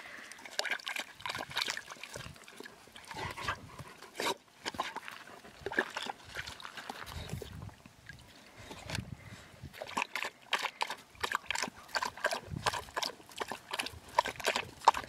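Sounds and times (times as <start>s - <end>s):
water splashing in tub: 0.4s - 3.3s.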